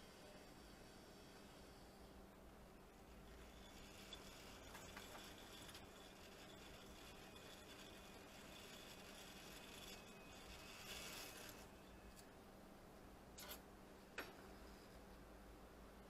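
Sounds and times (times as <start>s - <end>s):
faint low hum: 0.0s - 16.0s
faint rubbing of plastic parts: 3.0s - 12.3s.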